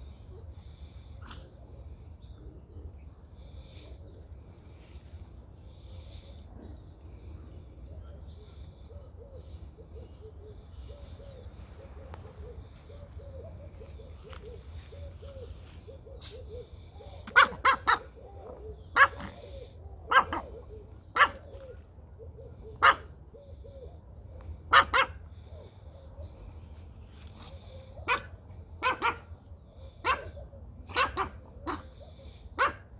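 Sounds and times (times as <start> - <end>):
small dogs yapping: 16.0 - 23.2, 24.6 - 25.4, 27.2 - 29.3, 29.9 - 32.9.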